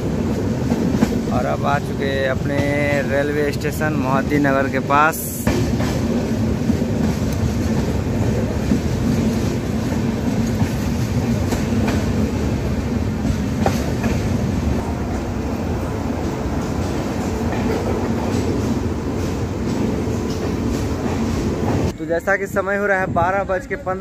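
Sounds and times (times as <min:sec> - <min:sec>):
train wheels rumbling on rail: 0:00.0 - 0:24.0.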